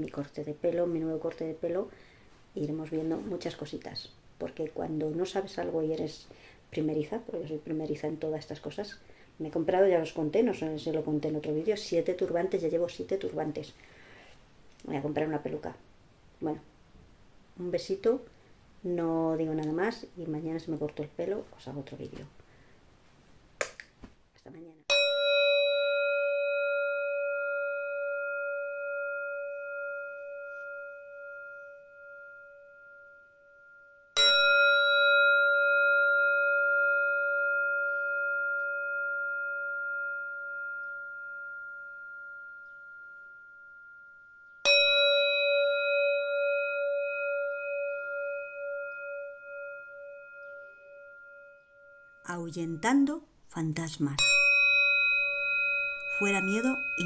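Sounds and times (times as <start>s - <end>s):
singing bowl ringing: 24.9s - 53.1s, 54.2s - 57.0s.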